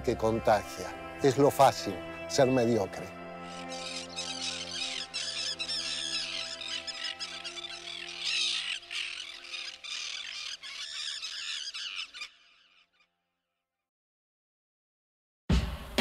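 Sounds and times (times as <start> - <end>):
soft sustained musical chord: 0.0 - 9.7
birds calling: 3.0 - 13.1.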